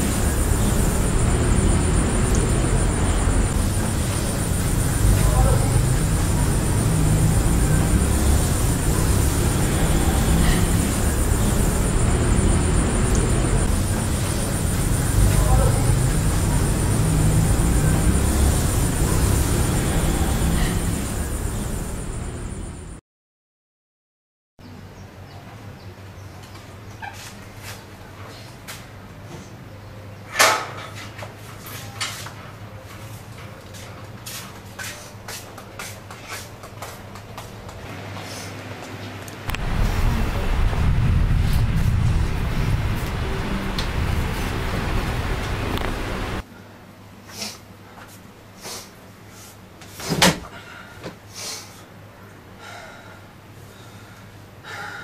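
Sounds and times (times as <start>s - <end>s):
hissing breaths: 0.0s - 22.4s
steady low hum: 0.0s - 23.0s, 39.4s - 46.4s.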